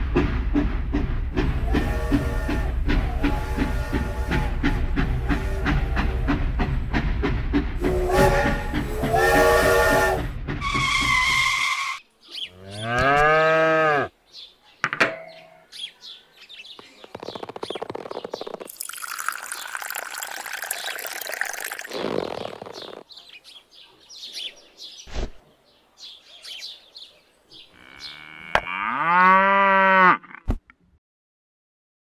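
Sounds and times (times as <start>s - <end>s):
cow mooing: 12.6s - 14.1s, 27.7s - 30.4s
water trickling into bowl: 18.6s - 22.7s.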